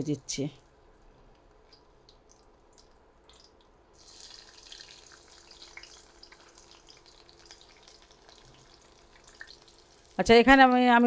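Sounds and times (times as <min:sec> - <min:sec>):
chilies frying in hot oil: 0:03.3 - 0:11.0
garlic sizzling crackling hiss: 0:03.9 - 0:10.6.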